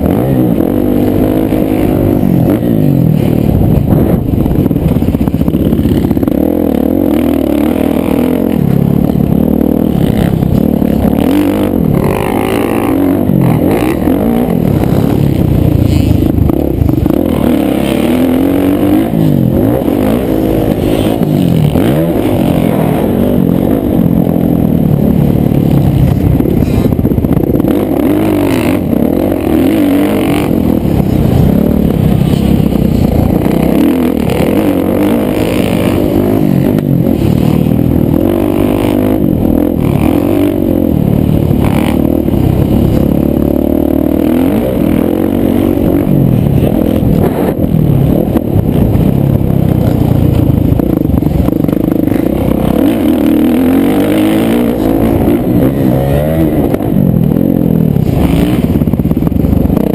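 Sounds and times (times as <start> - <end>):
motocross engine revving: 0.0 - 59.9.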